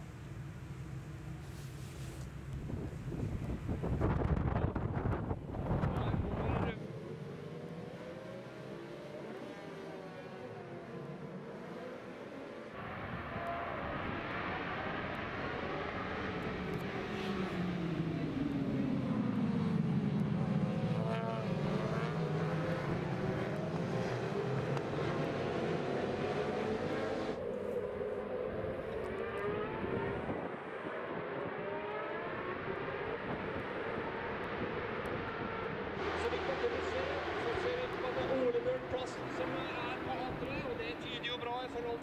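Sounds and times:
racing motorcycle engines revving: 3.7s - 42.0s.

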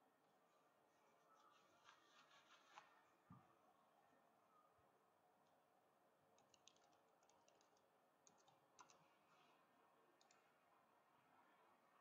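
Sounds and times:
keyboard typing: 6.3s - 9.1s, 10.1s - 10.4s.

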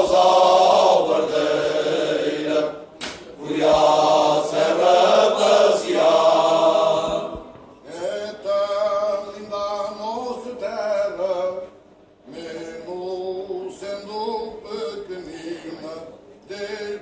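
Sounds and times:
male choir singing unaccompanied: 0.0s - 11.6s.

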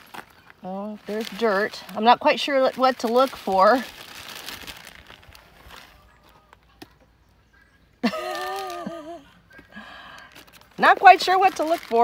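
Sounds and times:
paper bag rustling: 0.0s - 6.6s, 8.0s - 9.2s, 10.2s - 12.0s.

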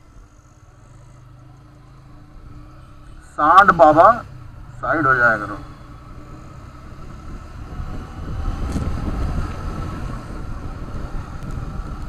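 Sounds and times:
motorcycle engine running: 0.0s - 12.0s
wind rushing over microphone: 6.0s - 12.0s.

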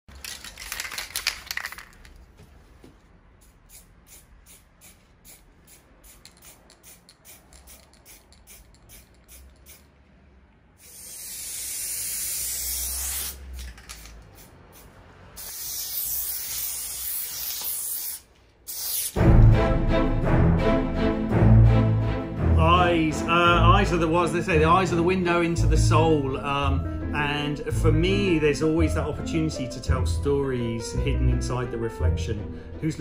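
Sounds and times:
spray-paint can hissing: 3.4s - 9.9s, 10.8s - 19.2s.

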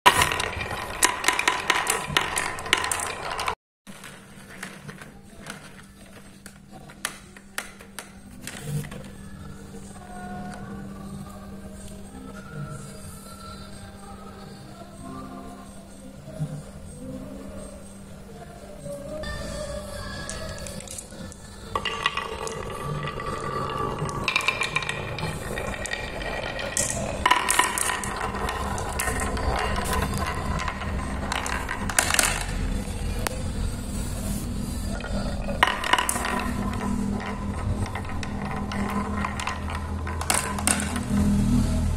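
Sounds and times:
marbles rattling down wooden track: 0.1s - 9.1s, 19.2s - 41.3s
balls knocking on wood: 0.1s - 9.2s, 19.2s - 41.3s.

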